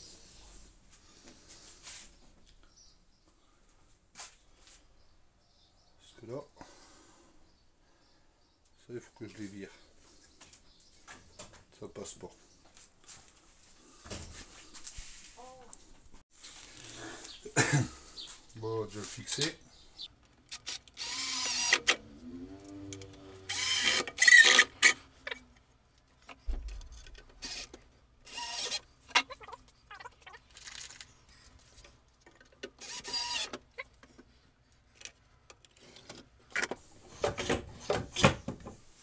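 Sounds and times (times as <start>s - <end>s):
sharp clicks and knocks: 20.1s - 34.3s
cordless drill motor whine: 20.5s - 25.5s, 27.3s - 29.2s, 32.8s - 33.6s.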